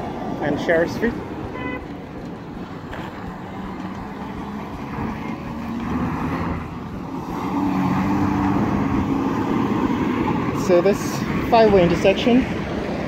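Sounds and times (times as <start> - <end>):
trucks passing: 0.0 - 13.0.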